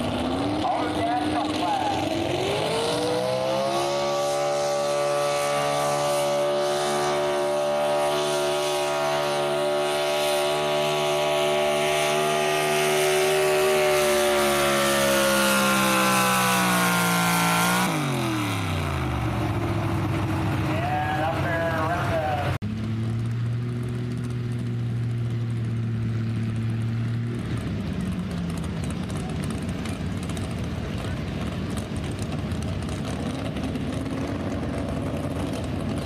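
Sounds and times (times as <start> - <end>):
pickup truck engine revving under load: 0.0 - 21.3.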